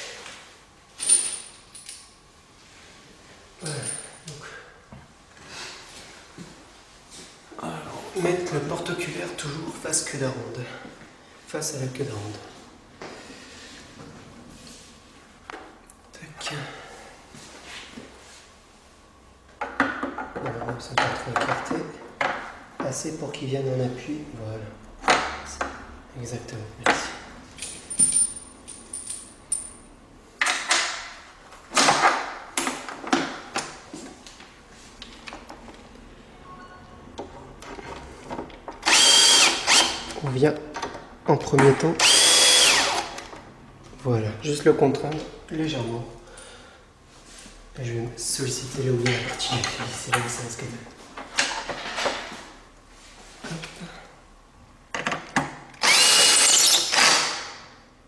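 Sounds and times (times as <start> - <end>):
cordless drill whining: 38.8 - 40.0, 42.0 - 43.2, 55.8 - 57.4.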